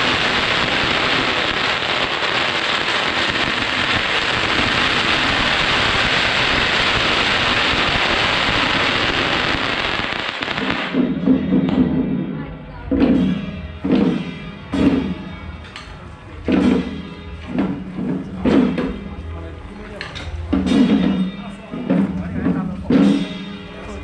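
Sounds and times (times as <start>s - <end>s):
firecrackers crackling: 0.0s - 11.9s.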